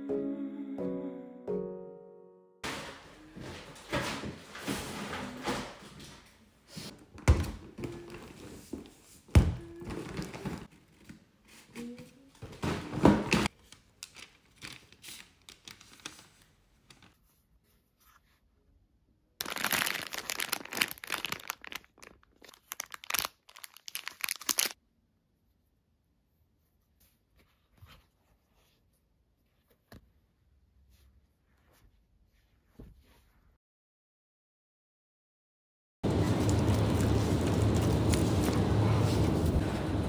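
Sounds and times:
items thudding down: 2.6 - 6.3, 12.4 - 13.5
plastic bag rustling and crinkling: 19.4 - 24.8, 36.1 - 40.0.

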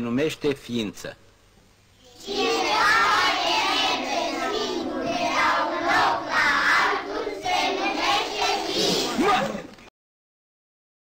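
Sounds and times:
children chanting in unison: 2.0 - 9.2.

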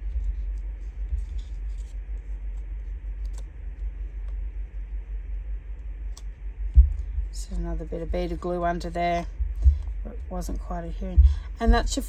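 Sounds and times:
paper rustle: 0.0 - 4.0
low rumble: 0.0 - 12.0.

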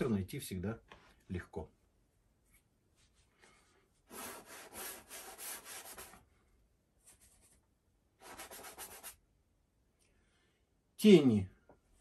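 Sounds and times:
paintbrush scrubbing on canvas: 4.1 - 6.2, 8.2 - 9.2.

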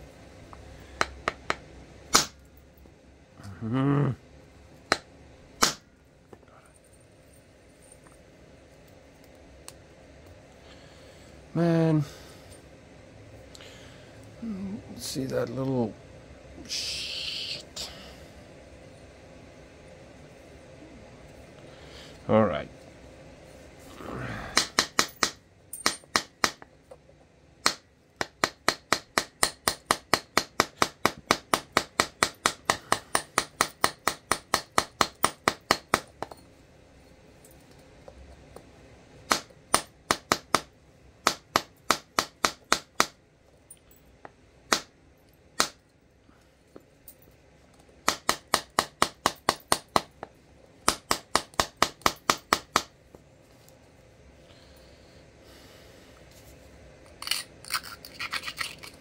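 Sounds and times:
tapping strikes on flint: 1.0 - 2.4, 4.9 - 5.8, 24.6 - 26.7.

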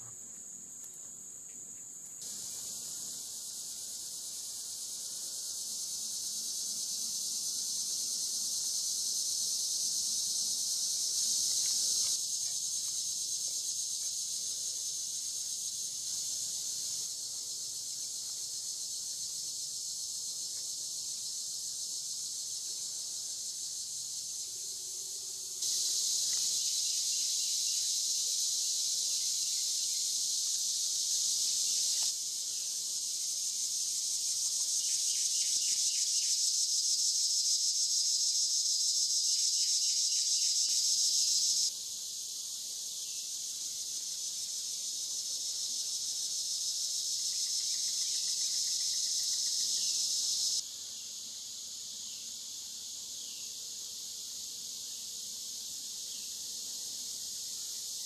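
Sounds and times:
cicadas chorus: 0.0 - 58.0.

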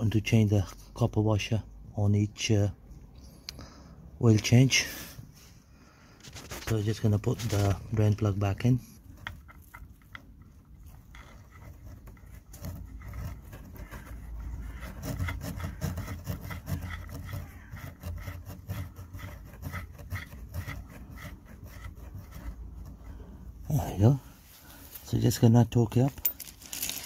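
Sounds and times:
drain plug clicking and rubbing: 6.5 - 23.2.

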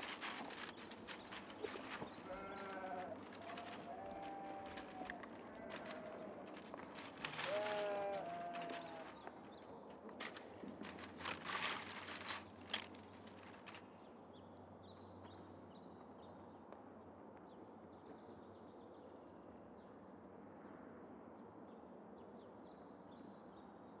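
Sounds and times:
rustling and crackling: 0.0 - 14.0.

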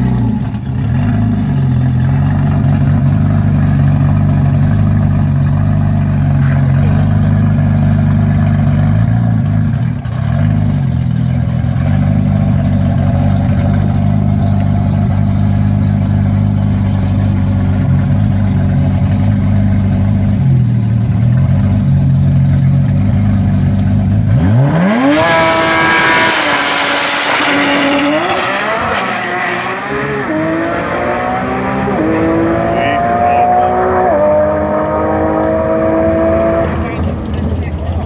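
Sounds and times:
car engine revving and accelerating: 23.8 - 37.3.

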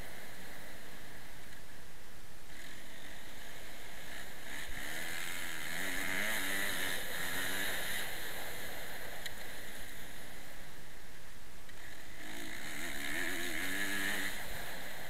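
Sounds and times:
motocross bike engine revving: 2.4 - 10.7, 11.7 - 15.0.

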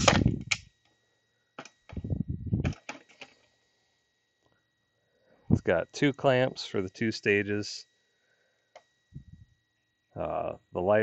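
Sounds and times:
tripod clicks: 0.0 - 0.7, 1.6 - 2.0.

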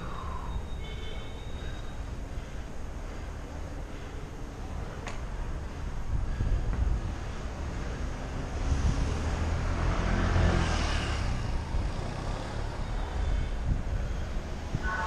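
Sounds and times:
street traffic rumble: 0.0 - 15.0
motor vehicle passing close: 7.4 - 13.5.

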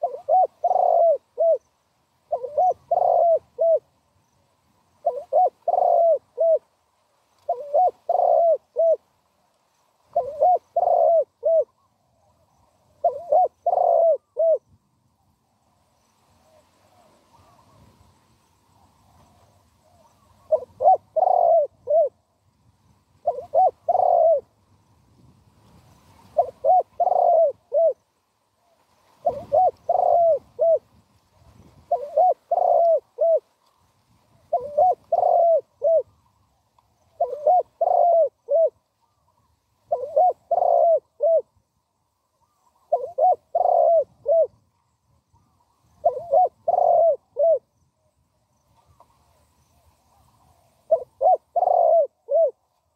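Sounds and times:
dove cooing: 0.0 - 3.9, 5.0 - 6.8, 7.4 - 9.1, 10.1 - 14.7, 19.0 - 22.2, 23.2 - 24.6, 26.2 - 31.0, 31.7 - 33.5, 34.3 - 41.6, 42.2 - 44.7, 45.4 - 47.8, 50.1 - 52.9.

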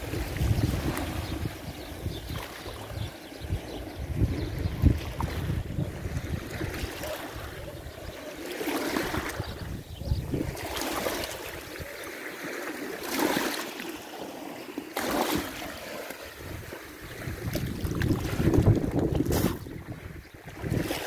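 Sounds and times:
small waves washing over stones: 10.4 - 21.0.

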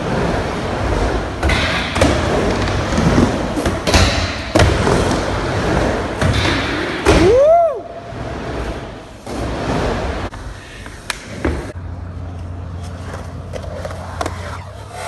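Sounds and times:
skateboard wheels rumbling on ramp: 0.0 - 10.3.

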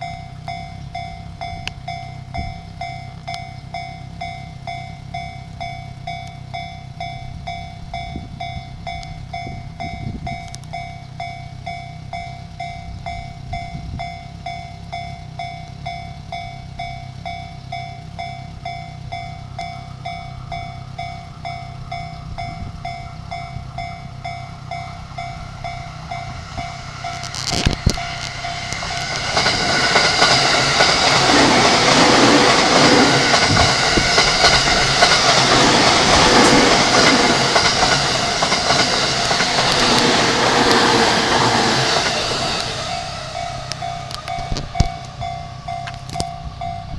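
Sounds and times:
electric train passing: 0.0 - 46.9
level crossing alarm dinging: 0.0 - 46.9
train wheels clattering: 15.4 - 46.9.

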